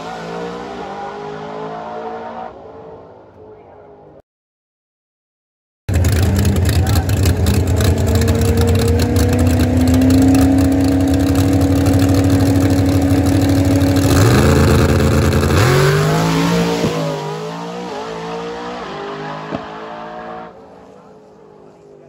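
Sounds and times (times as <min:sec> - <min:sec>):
drag car engine revving: 0:00.0 - 0:02.7, 0:05.9 - 0:20.7.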